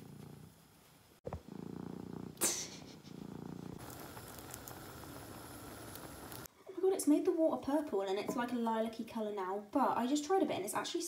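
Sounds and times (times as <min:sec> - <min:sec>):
cat purring: 0:00.0 - 0:00.6, 0:01.2 - 0:06.5
pot boiling with bubbling hiss: 0:03.6 - 0:06.5.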